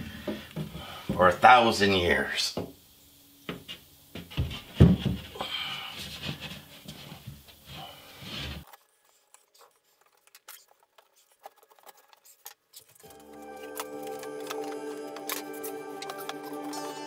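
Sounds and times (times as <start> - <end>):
cement board scraping against wall: 6.0 - 8.8.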